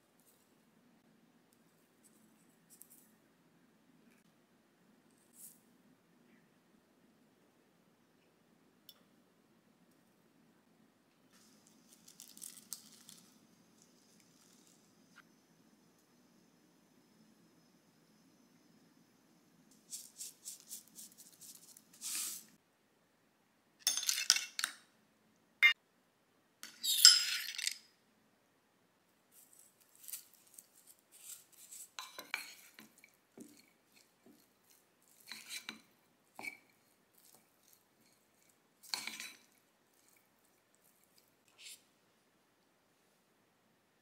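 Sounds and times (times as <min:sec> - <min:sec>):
wooden spoon scraping a bowl: 0:30.0 - 0:41.8.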